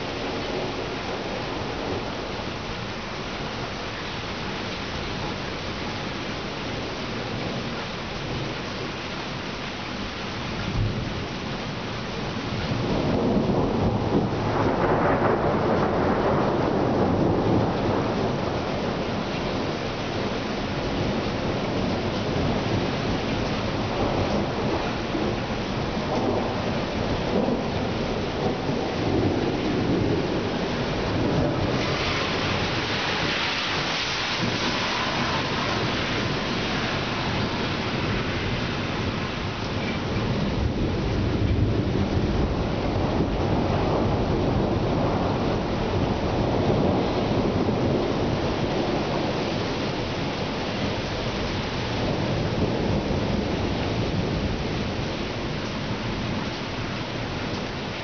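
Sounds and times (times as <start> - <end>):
rain falling: 0.0 - 58.0
thunder rolling: 12.7 - 20.4, 21.0 - 55.5.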